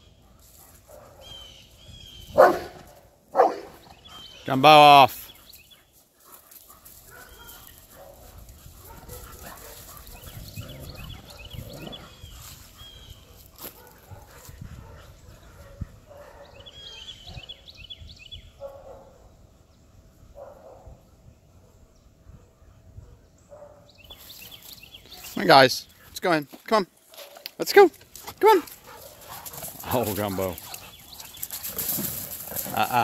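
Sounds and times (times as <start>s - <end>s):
dog barking: 2.3s - 3.8s, 7.1s - 10.3s, 13.2s - 17.6s, 18.6s - 19.2s, 20.4s - 21.0s.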